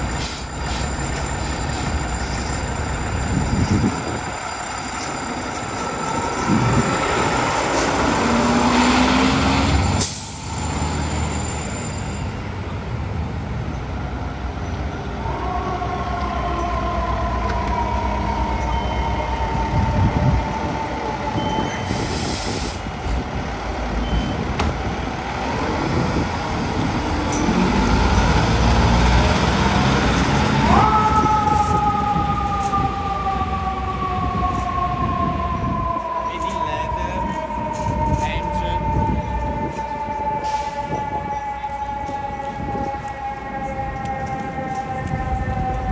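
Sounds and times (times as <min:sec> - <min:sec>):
diesel engines running: 0:00.0 - 0:36.6
siren wailing: 0:01.4 - 0:11.3, 0:15.2 - 0:22.1, 0:30.5 - 0:45.9
air brake hiss: 0:21.8 - 0:22.9, 0:40.4 - 0:40.9.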